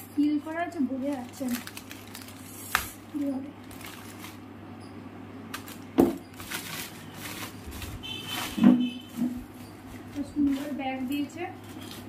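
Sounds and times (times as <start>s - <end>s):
plastic bag rustling: 0.5s - 4.5s, 5.5s - 12.0s
plastic bag snap: 1.0s - 4.4s.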